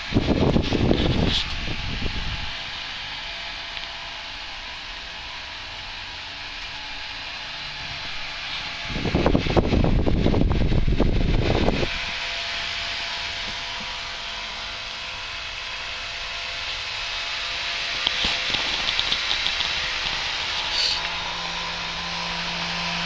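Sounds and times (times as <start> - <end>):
electric fan running: 0.0 - 23.0
loud low rumble: 0.1 - 2.8.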